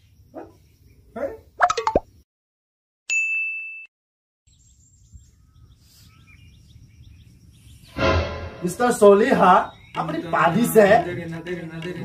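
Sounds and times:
small birds chirping: 0.0 - 2.2, 4.5 - 8.0, 9.0 - 12.0.

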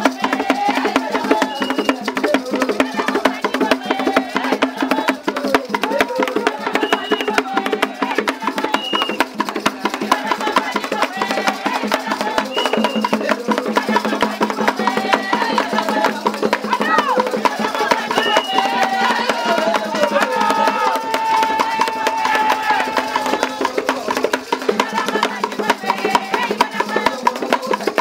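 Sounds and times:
fast dense percussion: 0.0 - 28.0
voices singing: 0.0 - 28.0.

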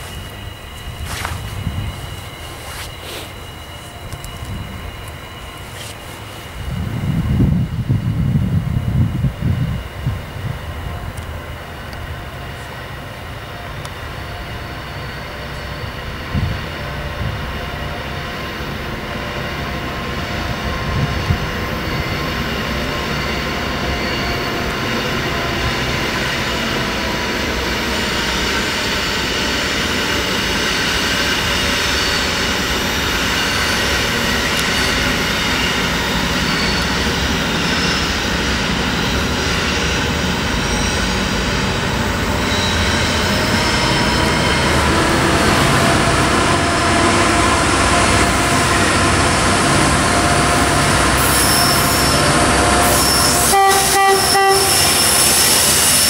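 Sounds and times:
freight train rumble: 0.0 - 56.0
wheel squeal: 28.0 - 44.9, 50.6 - 56.0.

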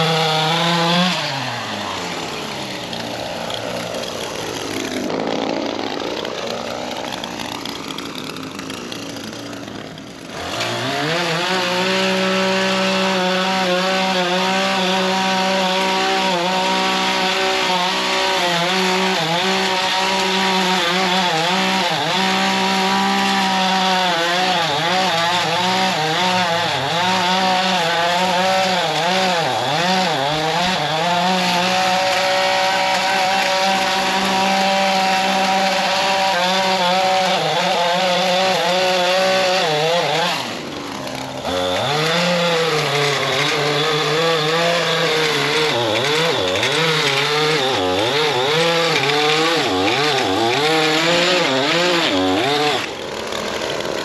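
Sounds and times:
lawn edger engine running: 0.0 - 11.6, 27.6 - 54.0.

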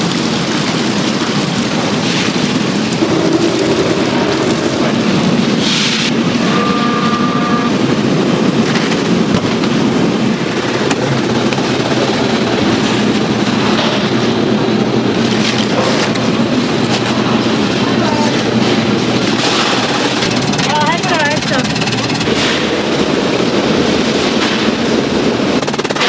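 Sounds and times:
factory machinery running: 0.0 - 26.0
brief high tone: 6.4 - 7.7.

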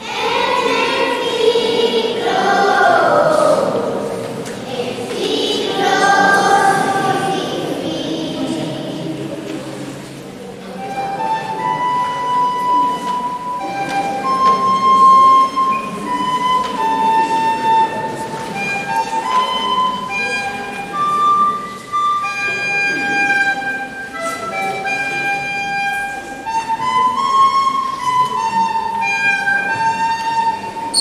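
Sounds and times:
children playing recorders: 0.0 - 9.5, 10.3 - 31.0.

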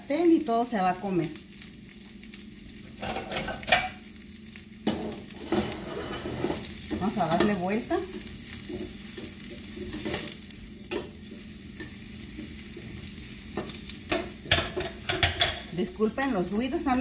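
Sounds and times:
onions sizzling in butter: 0.0 - 17.0
spatula stirring in pan: 5.0 - 15.9.

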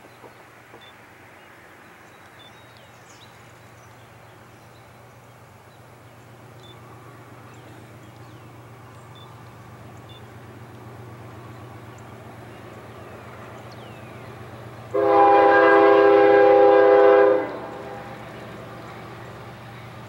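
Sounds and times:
birds chirping: 0.0 - 15.2
distant locomotive drone: 0.0 - 20.0.

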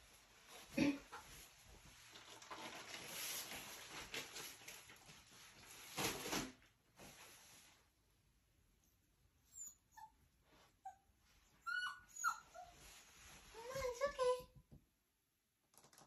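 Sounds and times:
plastic tarp rustling: 1.3 - 7.9.

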